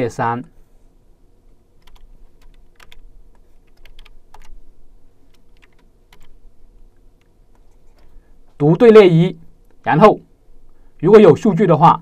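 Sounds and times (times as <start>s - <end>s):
keyboard and mouse clicking: 1.8s - 4.6s, 5.3s - 6.4s, 7.2s - 8.2s.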